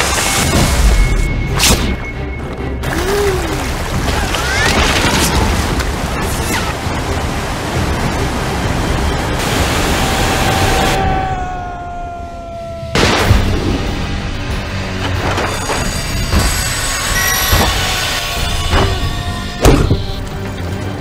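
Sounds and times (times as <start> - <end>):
waterfall rushing: 2.8 - 13.5.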